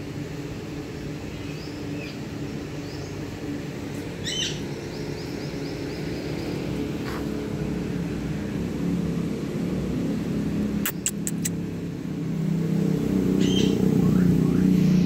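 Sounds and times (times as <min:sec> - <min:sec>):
vehicle engine humming: 0:00.0 - 0:15.0
sharp clicks: 0:10.9 - 0:11.6.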